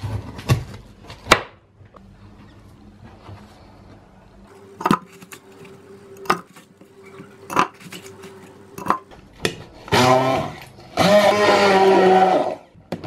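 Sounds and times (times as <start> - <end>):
blender motor: 9.9 - 12.6.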